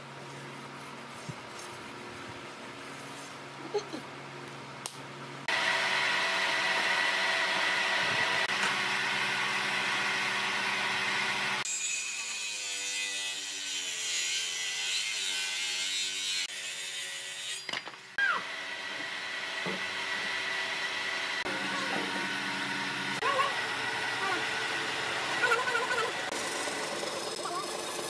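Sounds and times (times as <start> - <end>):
circular saw cutting wood: 5.5 - 17.7, 18.3 - 28.0.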